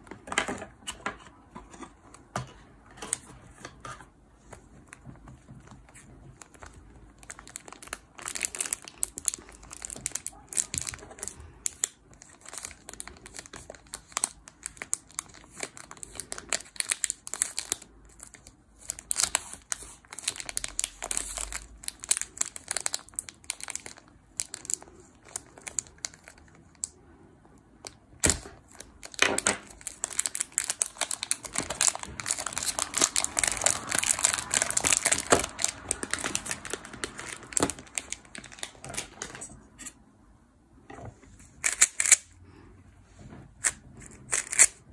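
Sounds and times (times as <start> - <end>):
plastic film crinkling: 4.5 - 27.0, 27.8 - 39.5.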